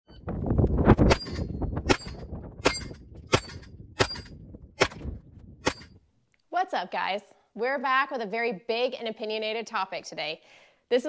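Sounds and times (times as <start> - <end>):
low rumble: 0.1 - 6.0
gunshots with metallic ring: 1.1 - 5.0.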